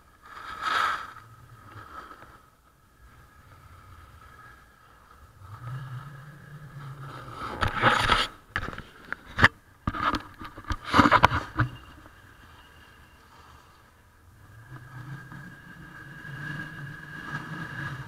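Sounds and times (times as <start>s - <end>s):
snowboard scraping over snow: 0.1s - 2.5s, 3.1s - 8.4s, 14.6s - 18.0s.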